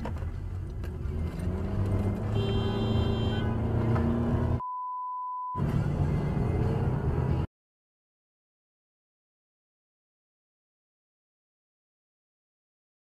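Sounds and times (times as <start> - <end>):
road and engine noise in car: 0.0 - 4.6, 5.4 - 7.5
brief high tone: 4.6 - 5.6
censor bleep: 4.6 - 5.6.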